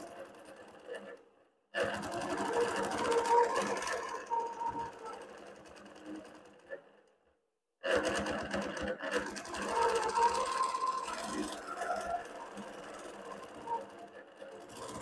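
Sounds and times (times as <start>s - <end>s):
quilting machine needle patter: 0.0s - 1.2s, 1.8s - 7.0s, 7.8s - 15.0s
wavering motor hum: 2.1s - 6.2s, 9.3s - 15.0s.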